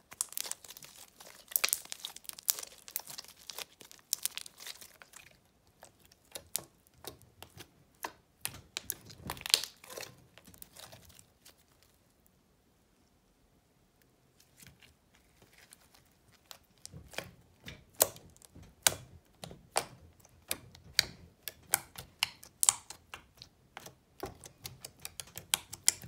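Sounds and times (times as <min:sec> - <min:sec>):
slime air pockets popping: 0:06.2 - 0:11.2.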